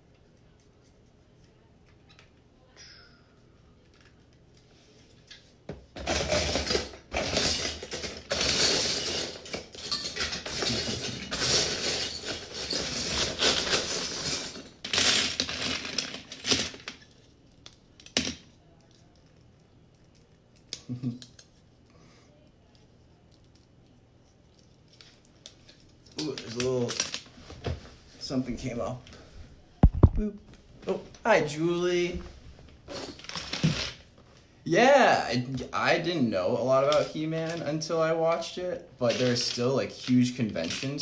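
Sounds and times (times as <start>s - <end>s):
plastic bricks clattering: 6.0s - 17.0s.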